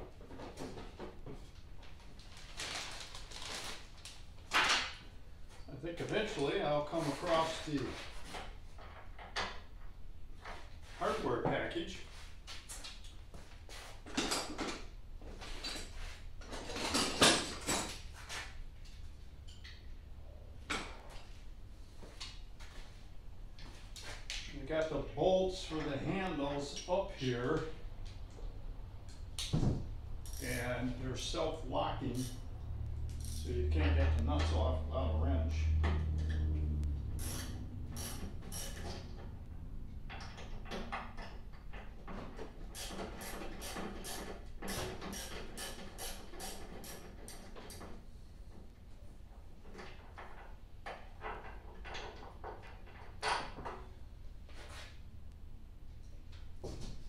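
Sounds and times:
objects and packaging clattering: 0:00.0 - 0:05.6
hand tools clicking and rattling: 0:40.1 - 0:47.9.

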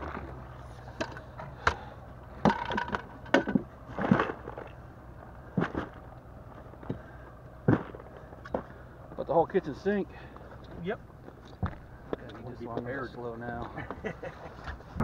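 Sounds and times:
low steady hum: 0:00.0 - 0:15.0
fishing gear knocking and clattering: 0:02.4 - 0:04.8.

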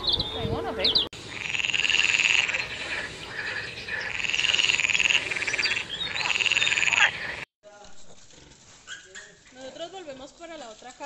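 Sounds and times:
frog croaking: 0:01.2 - 0:07.5.

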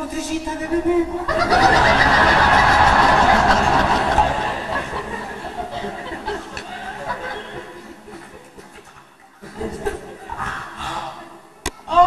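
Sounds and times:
audience laughing: 0:01.3 - 0:10.8.

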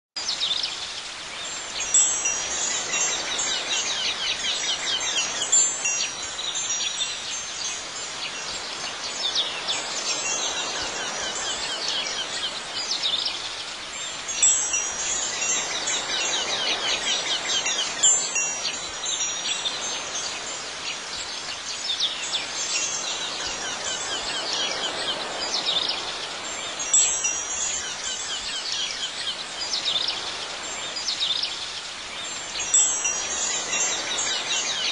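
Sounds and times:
high tinkling chimes: 0:01.4 - 0:34.9.

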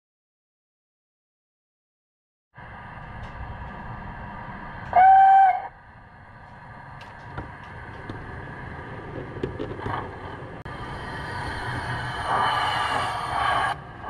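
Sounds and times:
model train rumbling: 0:02.6 - 0:14.0
model locomotive whistle: 0:04.9 - 0:05.8.

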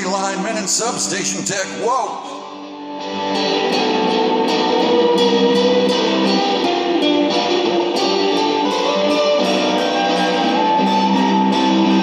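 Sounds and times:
electric guitar picking: 0:02.5 - 0:12.0.

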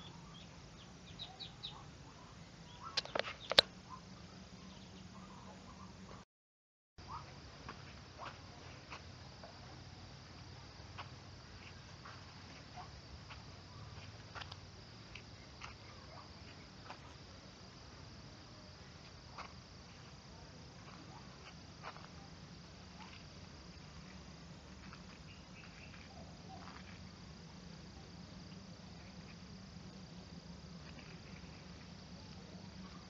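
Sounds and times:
insects chirping: 0:00.0 - 0:06.2, 0:07.0 - 0:33.0
faint sharp clicks: 0:03.0 - 0:03.7.

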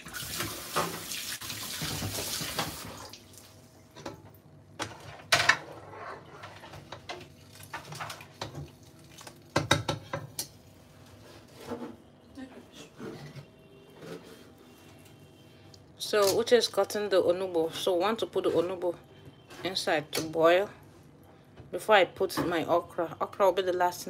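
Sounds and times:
tap water running: 0:00.0 - 0:03.6.

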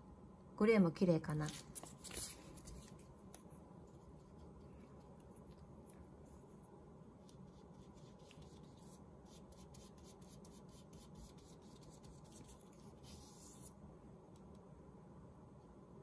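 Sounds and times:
brush strokes spreading glue: 0:06.2 - 0:13.8.

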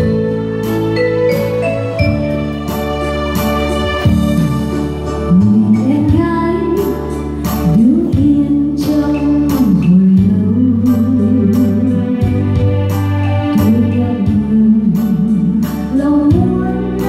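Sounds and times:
electronic keyboard: 0:00.0 - 0:17.0
woman singing: 0:04.4 - 0:12.5, 0:13.5 - 0:17.0.

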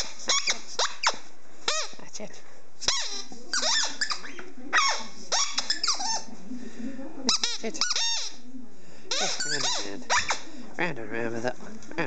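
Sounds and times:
rubber squeaky ball squeaking: 0:00.0 - 0:02.0, 0:02.8 - 0:06.3, 0:07.3 - 0:08.4, 0:09.1 - 0:10.5.

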